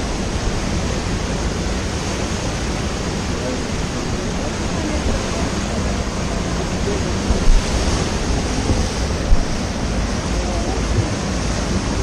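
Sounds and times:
river whitewater rushing: 0:00.0 - 0:12.0
wind buffeting microphone: 0:00.0 - 0:12.0
low thumps: 0:06.3 - 0:10.2.

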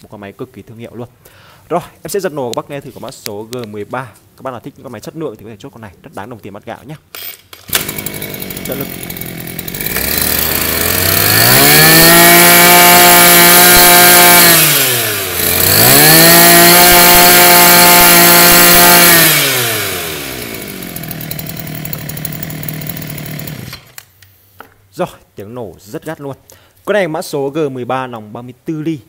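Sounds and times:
brush cutter engine revving: 0:07.2 - 0:24.0.

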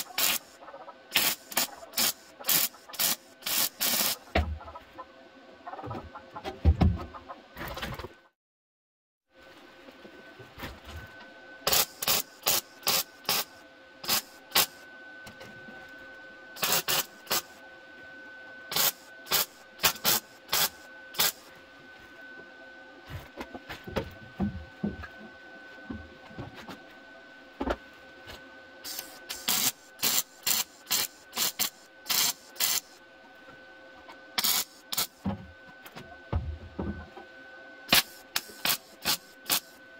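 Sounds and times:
spot welding bursts: 0:00.0 - 0:04.3, 0:11.7 - 0:14.8, 0:16.6 - 0:17.6, 0:18.7 - 0:21.5, 0:28.9 - 0:33.0, 0:34.4 - 0:35.2, 0:37.9 - 0:39.8
faint hum: 0:09.3 - 0:39.9.

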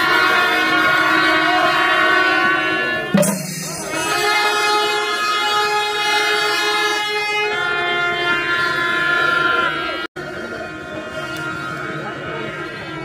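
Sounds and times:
horns blowing long blast: 0:00.0 - 0:13.0.

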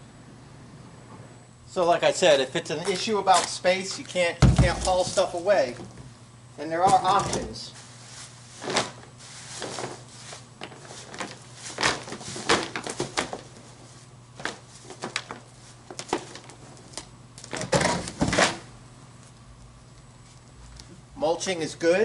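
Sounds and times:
leaves rustling and scraping: 0:06.8 - 0:13.0.

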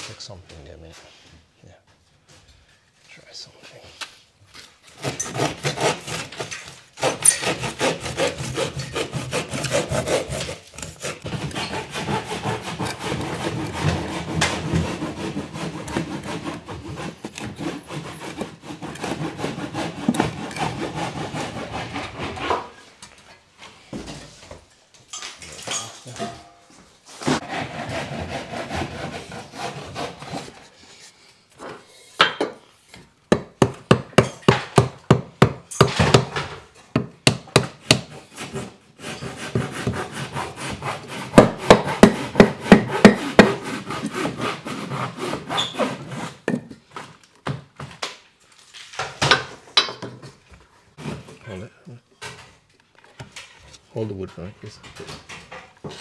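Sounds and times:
saw cutting through wood: 0:04.9 - 0:22.8, 0:27.2 - 0:30.8, 0:37.9 - 0:46.5.

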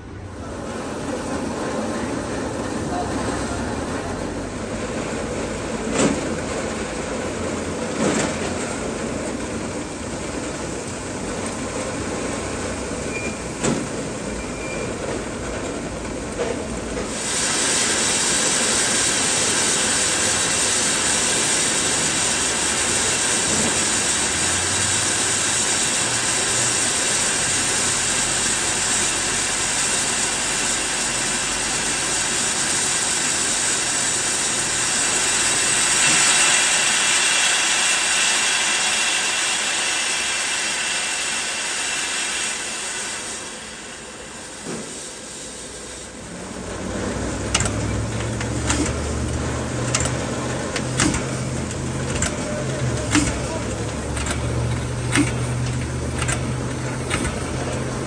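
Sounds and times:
steam hissing from valve: 0:17.0 - 0:58.0.

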